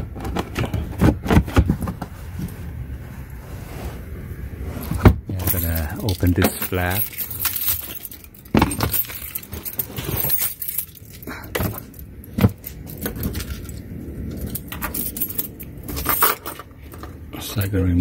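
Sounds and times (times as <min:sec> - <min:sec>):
keys jangling: 0:05.4 - 0:17.2.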